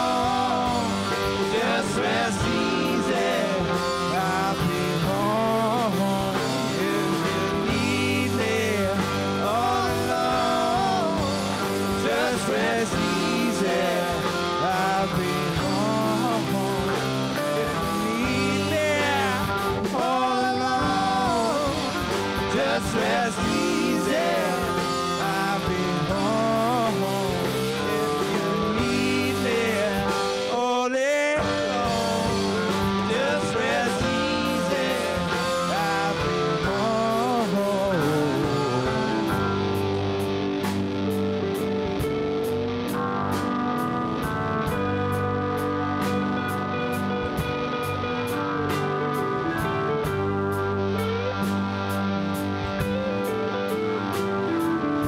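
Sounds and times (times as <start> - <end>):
electric bass: 0.0 - 30.8, 31.4 - 55.0
person singing: 0.0 - 40.3
drums: 0.0 - 55.0
electric guitars: 0.0 - 55.0.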